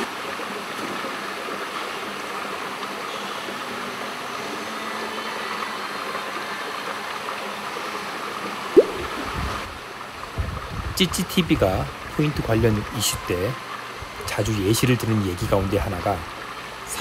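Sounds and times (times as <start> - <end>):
circulating water rushing: 0.0 - 17.0
sharp rising swish: 8.8 - 9.6.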